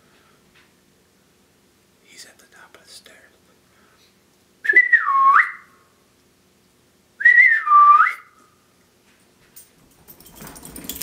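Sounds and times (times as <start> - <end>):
person whistling to call a dog: 4.7 - 5.7, 7.2 - 8.4.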